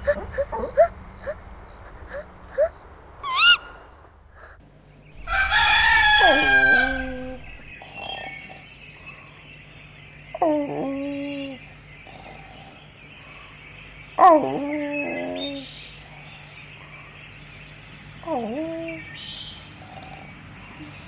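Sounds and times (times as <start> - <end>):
falling animal call: 0.0 - 3.9, 5.2 - 8.3
warbling bird call: 0.2 - 3.9, 5.2 - 8.7
rooster crowing: 5.2 - 7.7.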